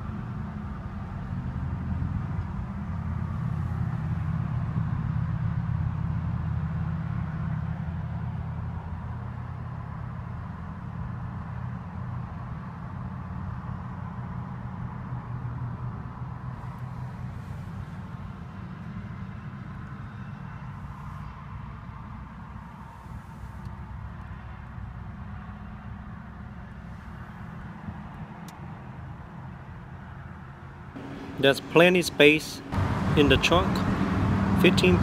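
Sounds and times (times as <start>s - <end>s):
vehicle rumble inside car: 30.9s - 35.0s.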